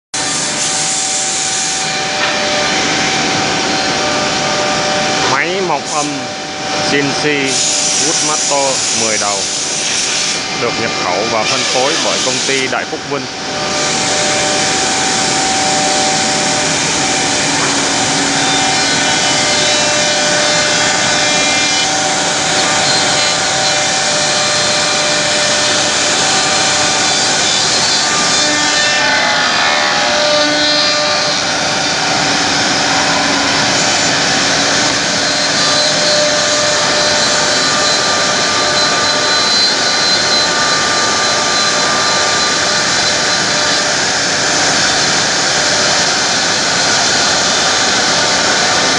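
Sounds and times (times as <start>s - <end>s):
machine spindles whining: 0.2s - 48.9s
router bits cutting wood: 0.2s - 48.9s.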